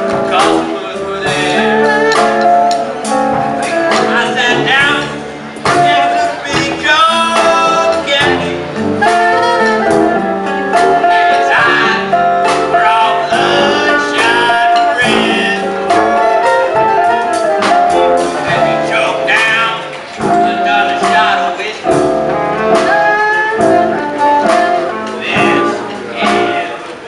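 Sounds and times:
saxophones playing melody: 0.0s - 6.4s, 7.0s - 27.0s
drums: 0.0s - 27.0s.

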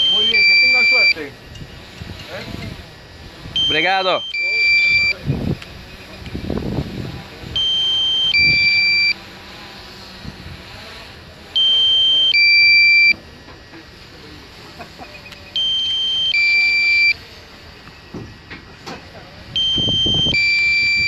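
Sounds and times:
electronic two-tone alert beeping: 0.0s - 1.2s, 3.6s - 5.2s, 7.6s - 9.2s, 11.6s - 13.2s, 15.2s - 17.2s, 19.6s - 21.0s.

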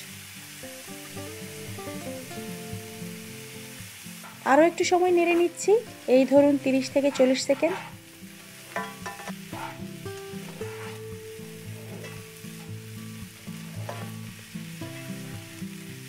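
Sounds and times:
food sizzling in a pan: 0.0s - 16.0s
soft background music: 0.0s - 16.0s
spatula scraping a pan: 4.2s - 4.6s, 5.2s - 5.8s, 6.4s - 12.9s, 13.5s - 14.3s.

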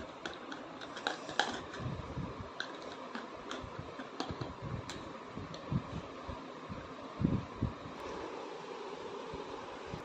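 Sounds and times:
plastic toys clicking: 0.0s - 1.8s
faint steady hiss: 0.0s - 10.0s.

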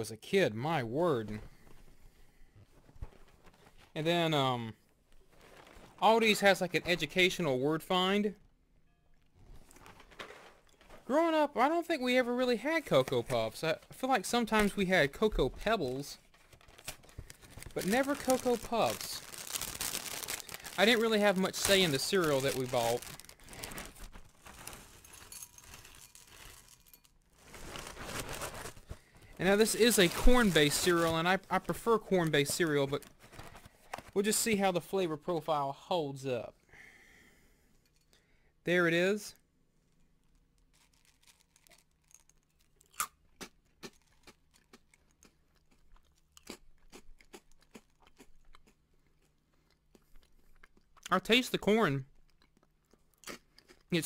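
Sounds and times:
plastic bag crinkling: 5.2s - 6.6s, 9.6s - 11.2s, 15.6s - 34.2s, 40.6s - 42.8s
chewing crunchy cereal: 16.9s - 27.2s, 40.6s - 51.3s, 52.1s - 54.0s
cereal pouring from box: 17.3s - 28.8s.

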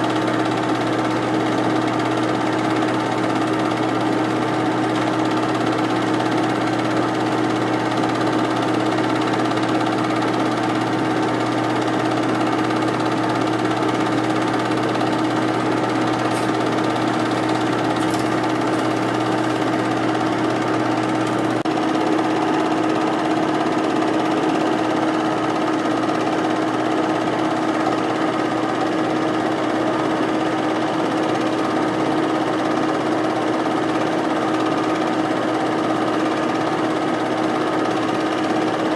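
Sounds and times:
film projector whirring and clattering: 0.0s - 38.9s.

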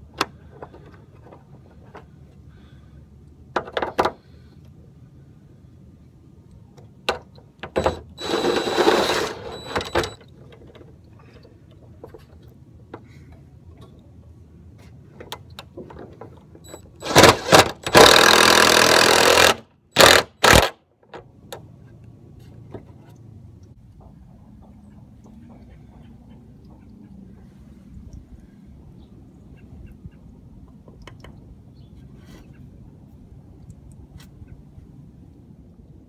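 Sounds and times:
impact driver driving screw: 7.8s - 10.2s, 17.0s - 20.7s.

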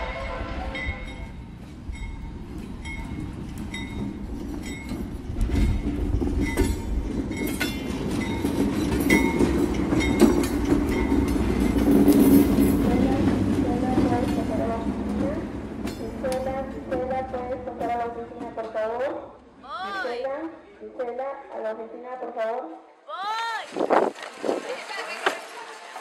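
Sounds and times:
freight train rumble: 0.0s - 19.4s
train cars clattering: 0.2s - 19.2s.

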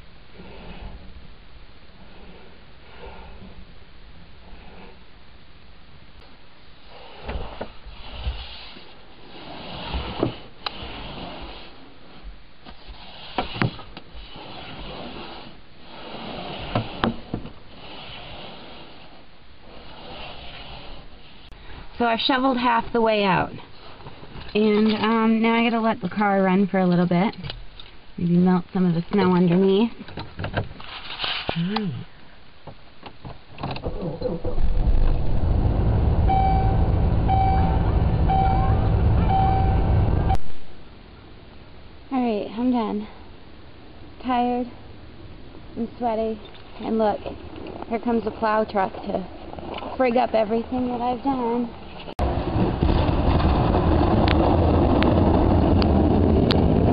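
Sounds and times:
snow shovel scraping: 12.8s - 17.0s
dashboard warning chime beeping: 36.2s - 40.4s.

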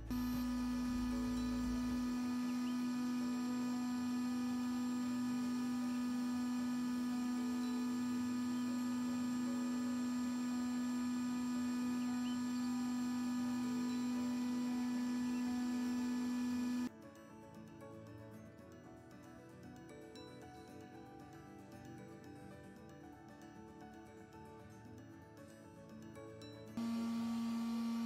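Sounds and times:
heat gun motor hum: 0.0s - 16.9s, 26.8s - 28.0s.

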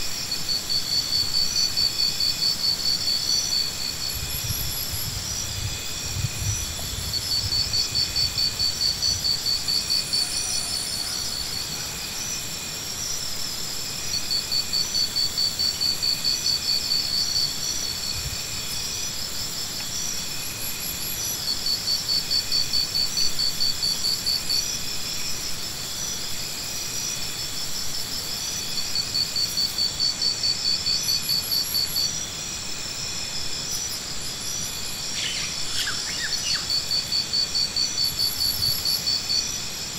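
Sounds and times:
insect trilling: 6.2s - 12.5s, 33.6s - 39.9s.

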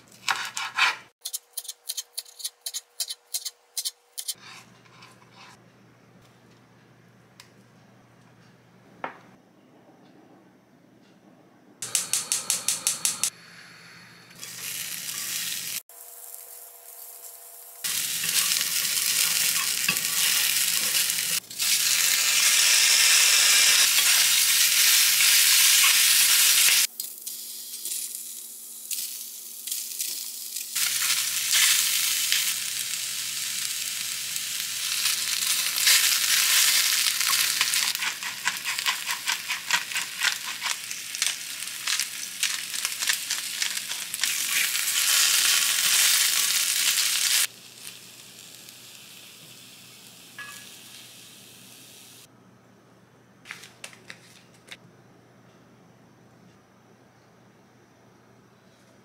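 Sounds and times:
food sizzling in a pan: 13.0s - 52.3s.

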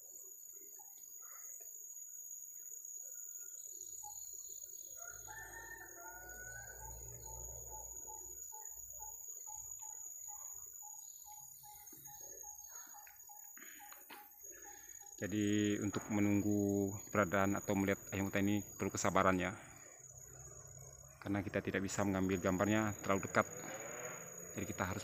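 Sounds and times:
forest insects droning: 0.0s - 25.0s
junglefowl crowing: 5.0s - 8.3s.

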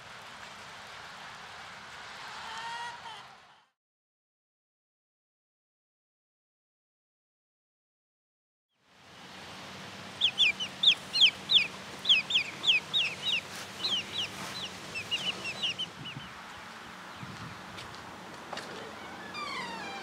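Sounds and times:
chicks peeping: 10.1s - 17.6s.

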